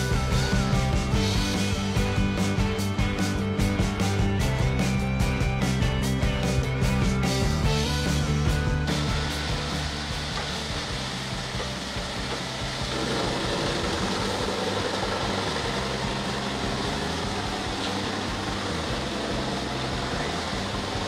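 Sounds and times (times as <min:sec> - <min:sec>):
grinder engine drone: 0:00.0 - 0:21.0
wood grinding: 0:08.0 - 0:21.0.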